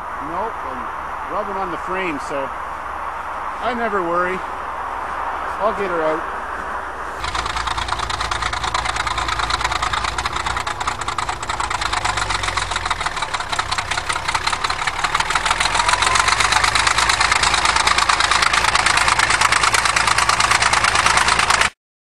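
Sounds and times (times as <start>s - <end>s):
bulldozer engine clattering: 7.2s - 21.7s.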